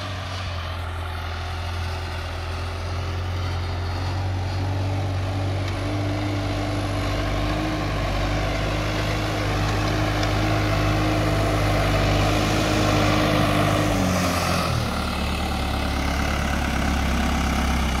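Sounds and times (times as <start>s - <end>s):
tractor diesel engine running: 0.0s - 18.0s.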